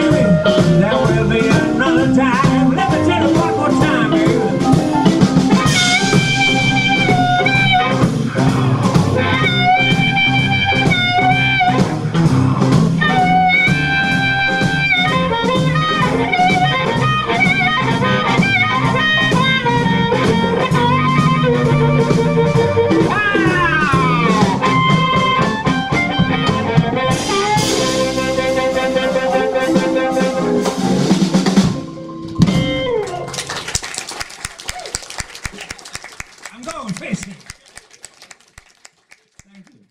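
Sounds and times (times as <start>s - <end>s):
blues band playing: 0.0s - 39.8s
amplified harmonica solo: 13.0s - 23.4s.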